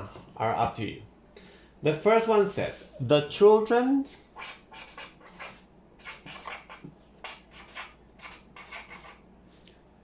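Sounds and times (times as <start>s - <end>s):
marker scratching on paper: 4.4s - 9.3s.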